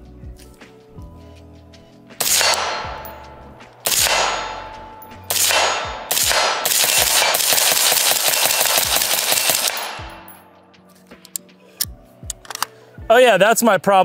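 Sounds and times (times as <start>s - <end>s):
suppressed rifle shots: 2.2s - 10.4s.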